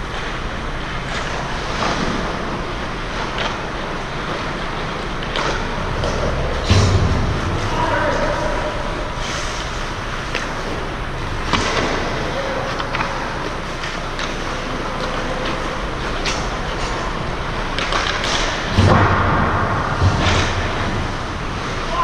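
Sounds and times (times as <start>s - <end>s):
hockey sticks and puck clacking: 0.1s - 22.0s
heavy thud: 6.0s - 7.9s, 18.7s - 21.0s.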